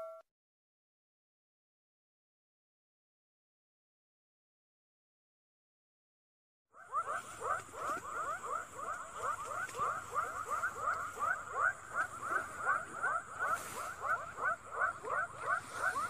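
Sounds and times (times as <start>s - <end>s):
faint high-pitched tone: 0.0s - 0.2s
frogs calling in chorus: 6.8s - 16.0s.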